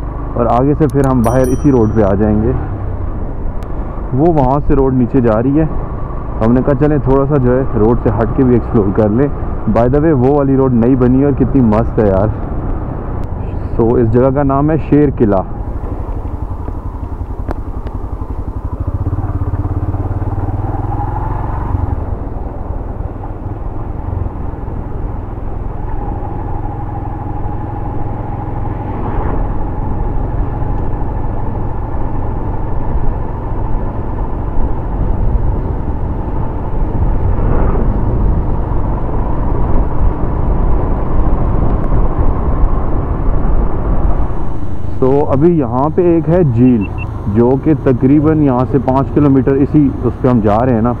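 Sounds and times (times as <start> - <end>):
low wind rumble: 0.0 - 51.0
motorcycle engine running: 15.5 - 51.0.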